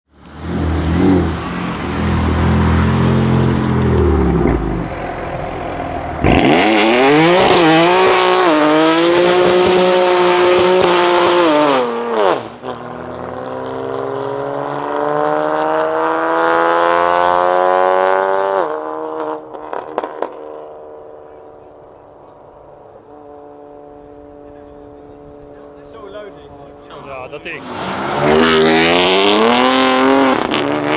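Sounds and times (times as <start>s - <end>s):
car engine revving hard: 6.2s - 20.7s, 27.6s - 30.9s.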